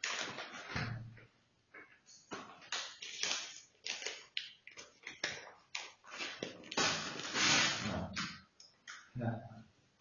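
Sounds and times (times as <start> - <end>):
paper packaging crinkling: 0.0 - 0.8, 2.6 - 7.8.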